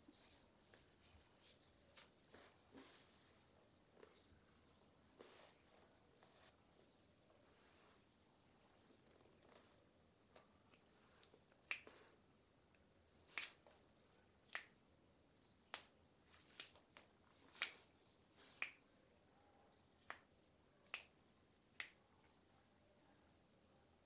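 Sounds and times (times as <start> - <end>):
finger snaps: 10.4 - 13.8, 14.4 - 14.8, 15.7 - 17.9, 18.5 - 18.9, 20.0 - 22.0.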